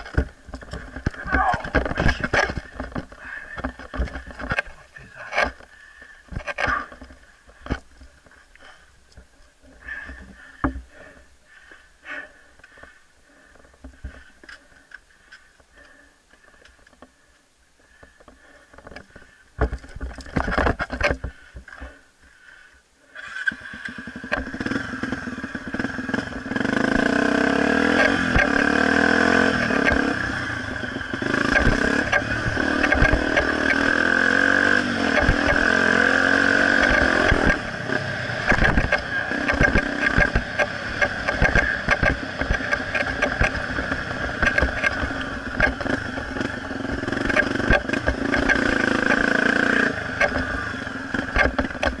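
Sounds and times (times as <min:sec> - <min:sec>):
knocks from rough track: 0:00.0 - 0:04.7, 0:19.6 - 0:21.9, 0:31.2 - 0:34.0, 0:34.8 - 0:35.8, 0:36.8 - 0:37.7, 0:38.4 - 0:49.3, 0:50.1 - 0:52.0
motorcycle engine revving: 0:23.1 - 0:52.0.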